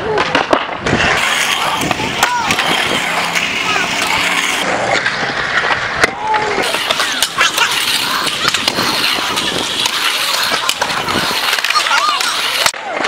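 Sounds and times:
scooter wheels rolling on concrete: 0.1s - 13.0s
scooter clacking on surface: 0.3s - 12.8s.

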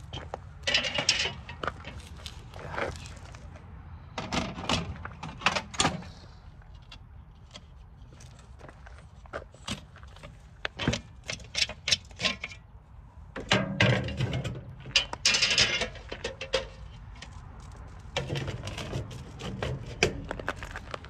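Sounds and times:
metal parts rattling and scraping: 0.0s - 3.5s, 9.6s - 12.6s, 13.4s - 21.0s
metal parts clicking and knocking: 0.1s - 2.2s, 13.4s - 17.3s.

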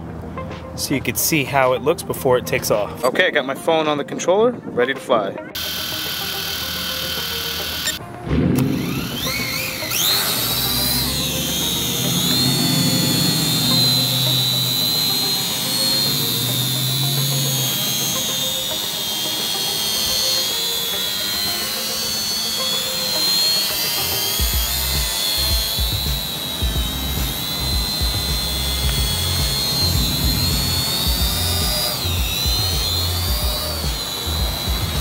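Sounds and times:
drone propellers whining: 5.6s - 35.0s
low rumbles: 24.4s - 35.0s.

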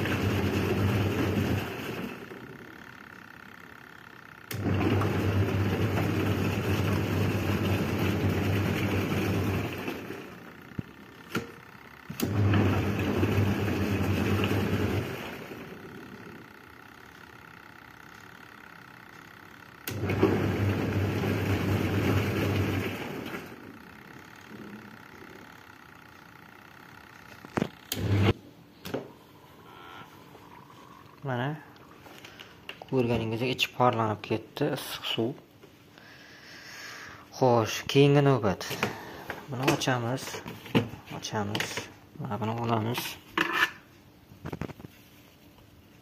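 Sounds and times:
water and laundry churning: 0.0s - 2.4s, 4.5s - 10.4s, 12.2s - 15.8s, 20.0s - 23.6s
washing machine motor humming: 0.0s - 43.0s.

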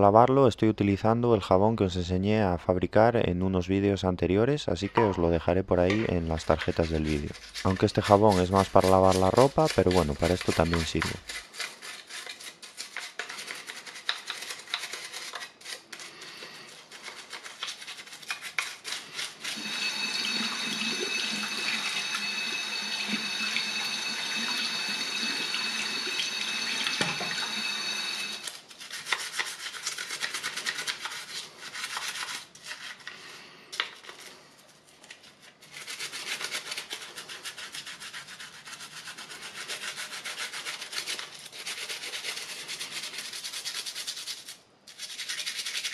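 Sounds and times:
toothbrush scrubbing plastic: 6.1s - 45.9s
tap water running: 19.4s - 28.5s.

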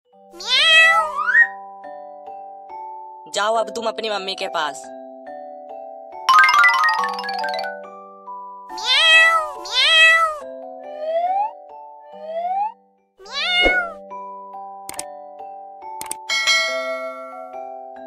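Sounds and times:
cat meowing: 0.4s - 1.5s, 8.7s - 10.4s, 13.2s - 14.0s
glockenspiel-like tune: 5.0s - 8.5s, 15.2s - 18.0s.

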